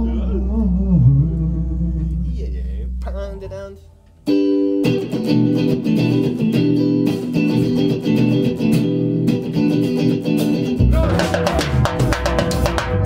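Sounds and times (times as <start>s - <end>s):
bass guitar: 0.0s - 13.0s
electric guitar riff: 0.0s - 13.0s
drum kit with kick and cymbals: 10.4s - 13.0s.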